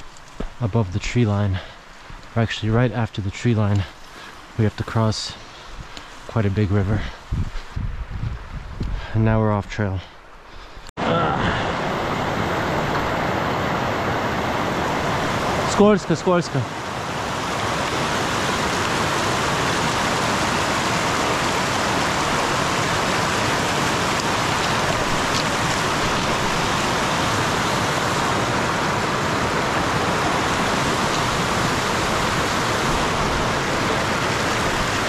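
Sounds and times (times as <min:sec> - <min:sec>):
stream rushing over rocks: 0:11.0 - 0:35.0.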